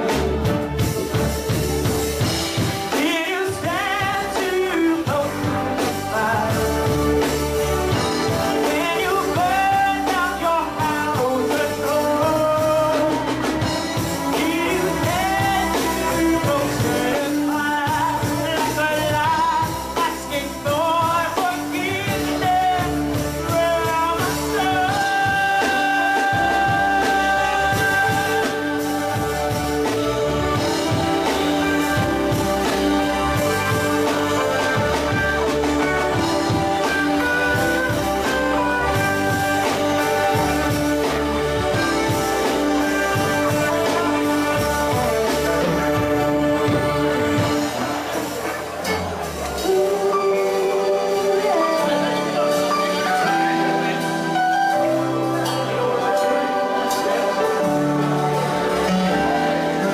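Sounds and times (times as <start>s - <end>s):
backing singers: 0.0s - 59.9s
live reggae band playing: 0.0s - 59.9s
woman singing lead vocal: 14.3s - 29.8s.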